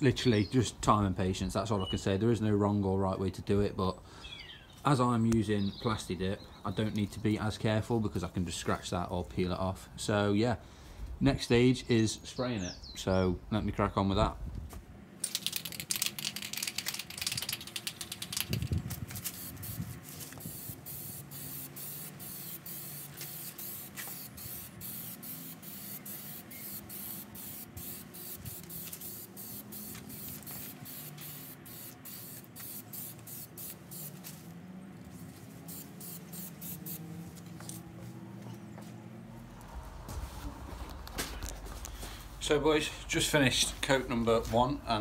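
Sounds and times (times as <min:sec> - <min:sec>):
aerosol spraying in spurts: 0:15.2 - 0:34.5, 0:35.4 - 0:37.8.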